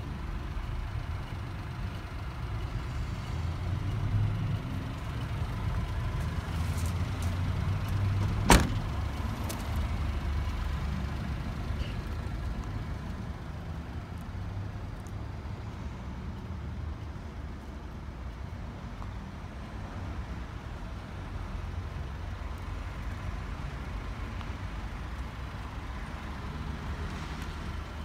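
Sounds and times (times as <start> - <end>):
door slam: 8.2 - 8.9.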